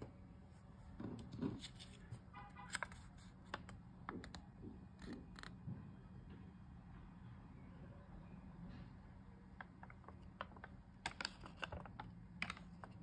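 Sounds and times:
banknote paper crinkling: 1.6 - 3.8.

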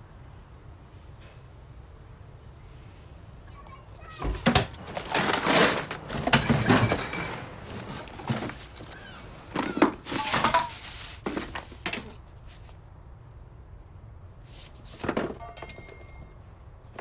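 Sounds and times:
objects crashing and clattering: 4.2 - 12.2.

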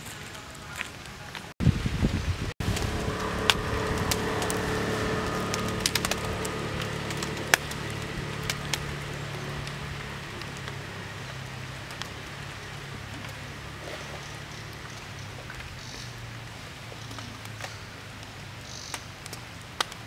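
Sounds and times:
sharp cracks: 2.6 - 13.5
low steady hum: 2.6 - 16.8.

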